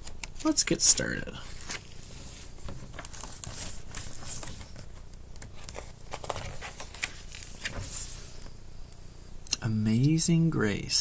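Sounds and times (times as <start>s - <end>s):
picture book handling noises: 0.0s - 8.6s
faint room hum: 0.0s - 11.0s.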